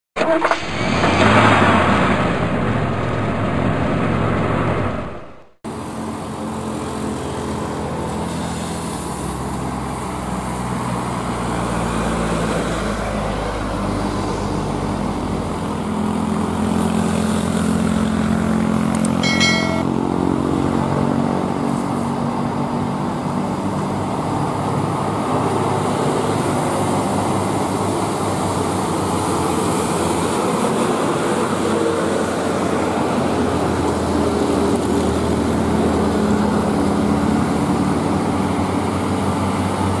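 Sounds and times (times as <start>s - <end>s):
diesel truck engine climbing: 0.2s - 40.0s
short horn beep: 19.2s - 19.8s.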